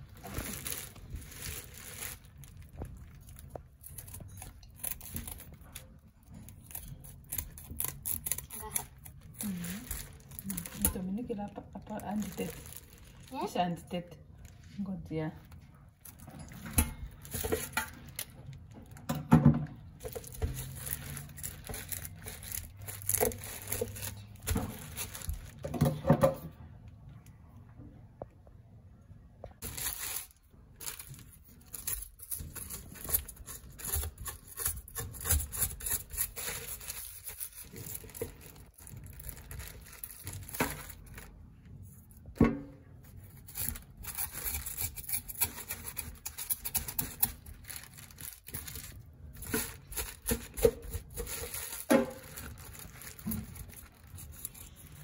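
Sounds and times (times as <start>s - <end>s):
plastic bag crinkling: 0.0s - 14.8s, 19.8s - 25.8s, 29.6s - 42.0s, 43.0s - 55.0s
scraping fish scales: 20.0s - 25.6s, 29.6s - 41.4s, 43.0s - 55.0s
scissors scraping fish scales: 43.4s - 47.5s.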